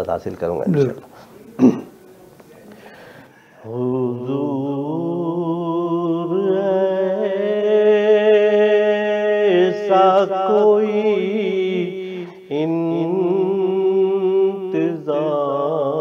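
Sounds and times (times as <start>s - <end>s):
man chanting unaccompanied: 3.7s - 16.0s.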